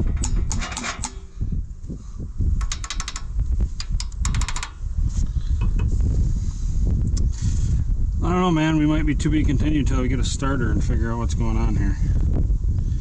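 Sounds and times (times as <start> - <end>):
metal tool clicking on rocker arms: 2.6 - 4.8.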